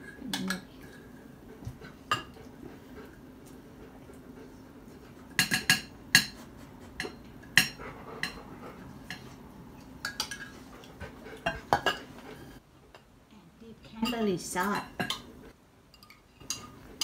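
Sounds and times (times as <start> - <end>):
cutlery clinking on plates: 5.4 - 6.4, 9.0 - 9.4, 10.0 - 10.6, 11.4 - 12.1, 14.0 - 15.3, 15.9 - 17.0.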